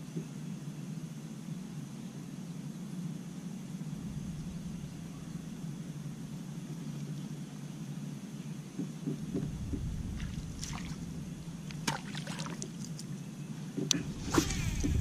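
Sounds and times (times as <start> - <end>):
steady low rumble: 3.6 - 7.6, 9.2 - 15.0
sharp knocks and clicks: 8.8 - 10.3
water sloshing and splashing: 9.2 - 13.1, 13.8 - 15.0.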